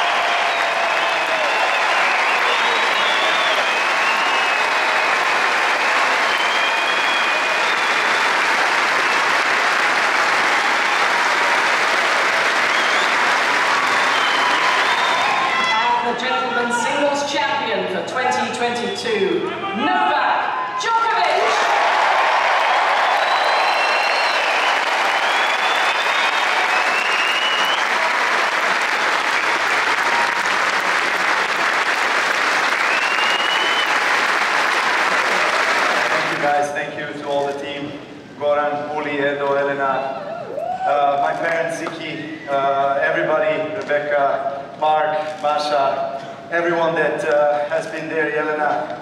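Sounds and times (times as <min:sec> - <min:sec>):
stadium crowd applauding: 0:00.0 - 0:16.0, 0:21.1 - 0:37.6, 0:40.3 - 0:44.0
whistle: 0:00.5 - 0:04.9, 0:06.2 - 0:08.4, 0:12.6 - 0:13.3, 0:13.9 - 0:15.4, 0:23.2 - 0:28.0, 0:32.8 - 0:34.0.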